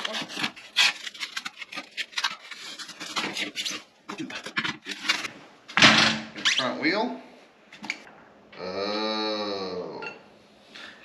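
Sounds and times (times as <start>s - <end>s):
packaging rustling and crinkling: 0.0s - 5.3s.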